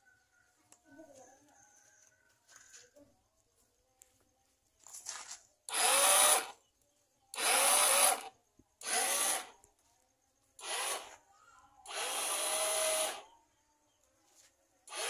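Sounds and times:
small electric winch motor whining: 5.7 - 6.6, 7.3 - 9.5, 10.6 - 11.2, 11.8 - 13.3.

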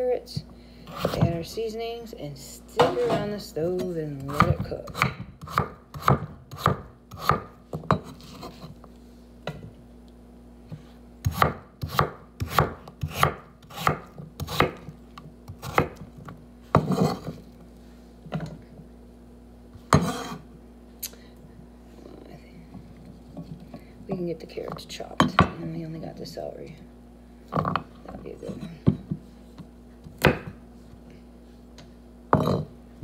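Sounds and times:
knife chopping on wooden board: 0.9 - 1.4, 4.3 - 8.7, 11.2 - 16.1, 16.7 - 17.4, 19.9 - 20.4, 30.1 - 30.6.

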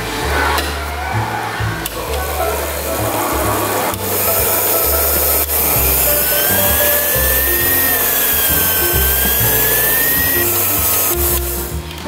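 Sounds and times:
background music: 0.0 - 12.0
stand mixer motor whining: 4.0 - 11.7.

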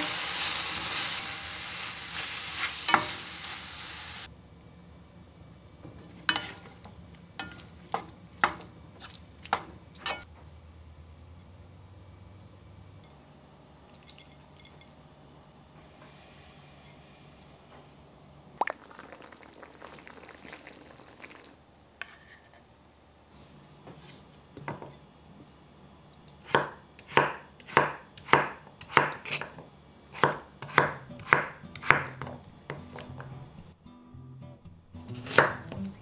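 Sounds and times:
knife chopping on wooden board: 26.5 - 33.3, 35.2 - 35.9.

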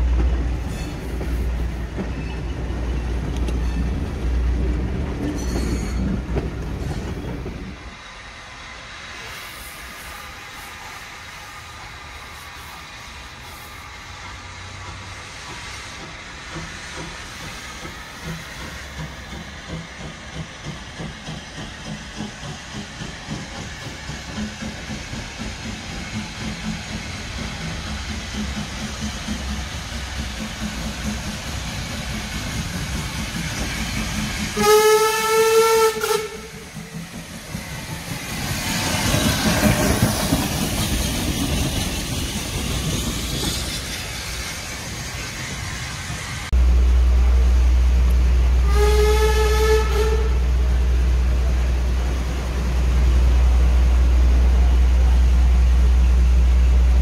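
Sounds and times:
loud rushing steam hiss: 0.0 - 57.0
steam locomotive exhaust beats: 0.0 - 57.0
steam whistle blast: 34.5 - 36.7, 48.6 - 50.4.

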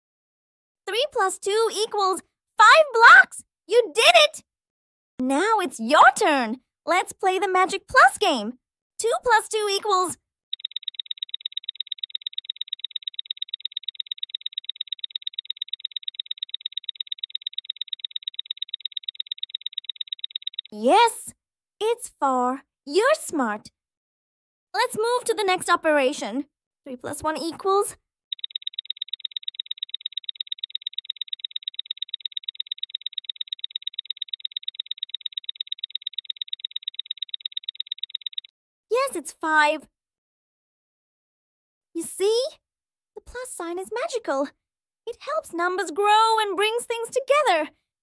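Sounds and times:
clock ticking quickly: 10.6 - 20.8, 28.3 - 38.5.

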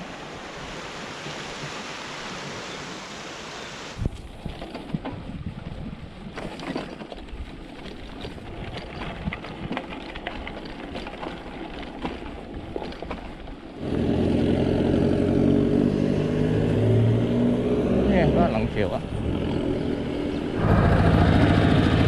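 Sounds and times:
bicycle rolling on dirt track: 4.0 - 16.8
vehicle engine hum: 13.8 - 22.0.

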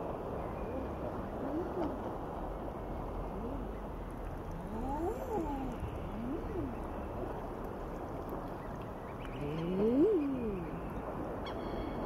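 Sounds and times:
low moaning animal calls: 0.6 - 2.2, 3.1 - 7.0, 9.2 - 12.0.

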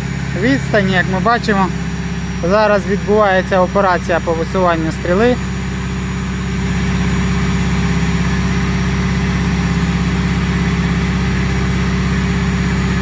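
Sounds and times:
engine running under load: 0.0 - 13.0.

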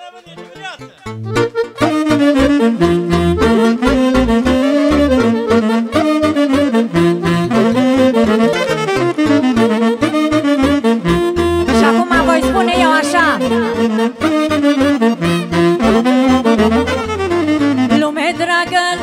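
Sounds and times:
wind instrument melody: 0.0 - 19.0
steady bass beat: 1.2 - 1.6.

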